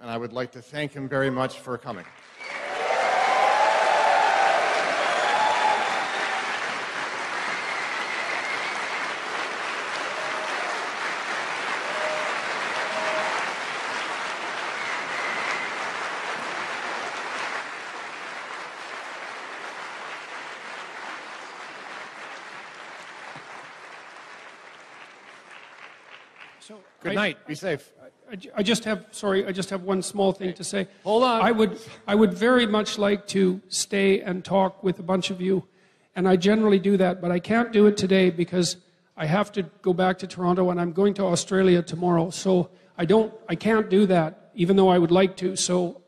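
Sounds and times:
large audience applauding: 2.0s - 27.2s.

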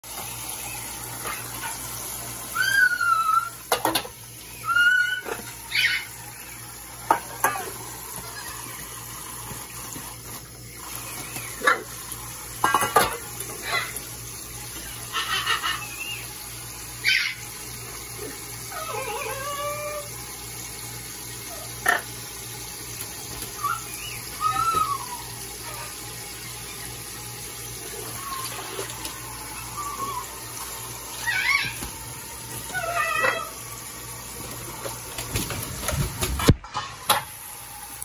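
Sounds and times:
faucet running into steel bowls: 0.0s - 38.0s
parrot calls: 2.5s - 3.6s, 4.5s - 6.3s, 14.8s - 16.3s, 17.0s - 17.4s, 23.6s - 26.0s, 31.2s - 31.9s, 32.7s - 33.6s
splashes and wing flapping: 27.8s - 36.8s.

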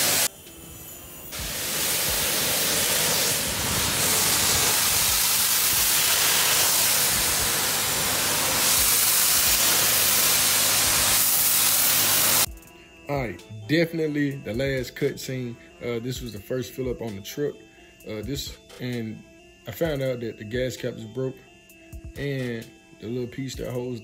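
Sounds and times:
pressure washer spraying metal: 0.0s - 12.5s.

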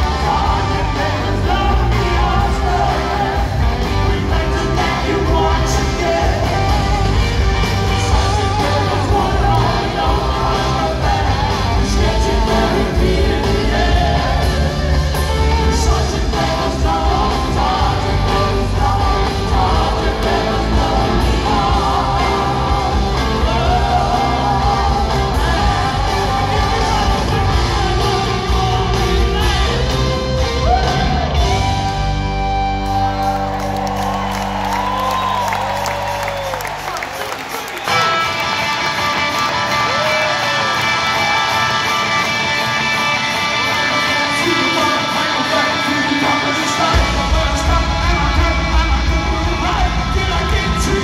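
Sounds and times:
person singing lead vocal: 0.0s - 32.0s, 43.6s - 51.0s
live rock band playing: 0.0s - 51.0s.

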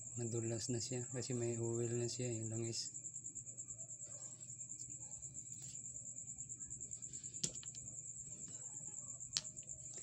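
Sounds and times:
crickets chirping: 0.0s - 10.0s
stones clicking: 7.4s - 7.9s, 9.3s - 9.7s.

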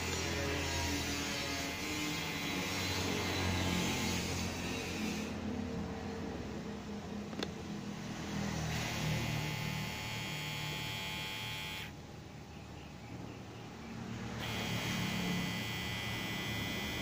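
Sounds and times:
hair clipper motor buzzing: 0.0s - 5.3s, 8.7s - 12.0s, 14.3s - 17.0s.

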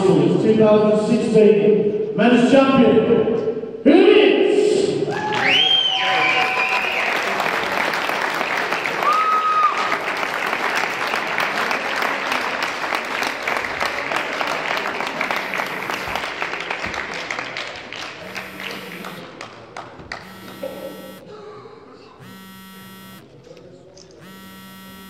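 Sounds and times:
audience applauding: 5.1s - 20.7s
short electric buzzes: 15.3s - 16.2s, 18.2s - 19.2s, 20.2s - 21.2s, 22.2s - 23.3s, 24.2s - 25.0s.

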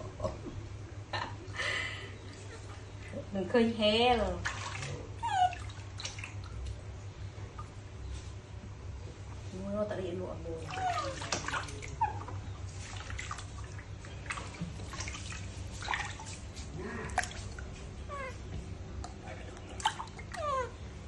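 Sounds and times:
water splashing in plastic tub: 3.8s - 6.8s, 10.4s - 18.0s, 19.0s - 20.8s.

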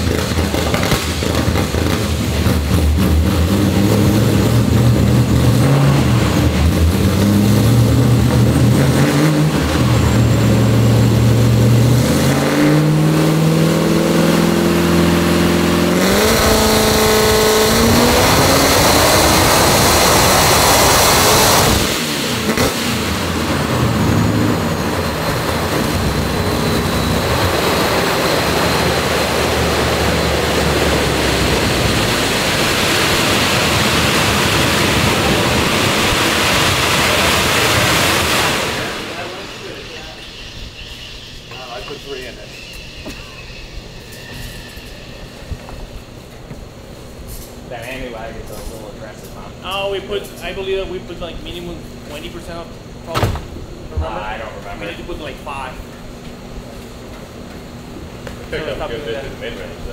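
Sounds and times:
supercharged engine revving on dyno: 0.0s - 46.2s.

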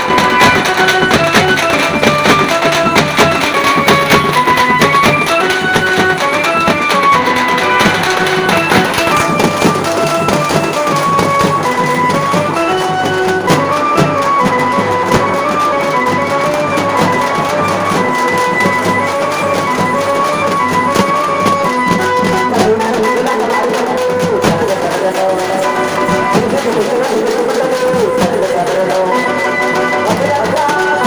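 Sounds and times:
melody of held notes: 0.0s - 24.2s
frame drums beaten with sticks: 0.0s - 31.0s.

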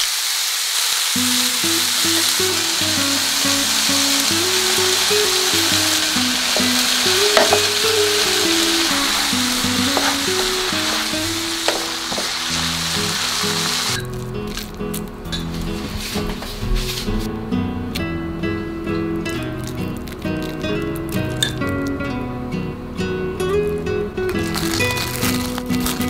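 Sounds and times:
vegetables sizzling in a frying pan: 0.0s - 14.7s
slow instrumental music: 1.2s - 26.0s
spatula scraping a pan: 6.5s - 13.1s.

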